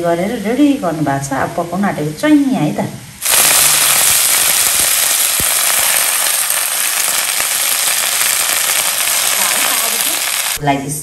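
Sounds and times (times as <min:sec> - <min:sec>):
wet food sizzling in oil: 0:03.2 - 0:10.6.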